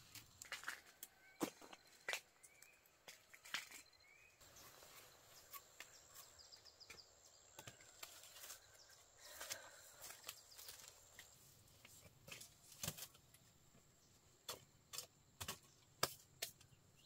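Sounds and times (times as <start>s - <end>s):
sharp taps and rustles: 9.4s - 16.8s.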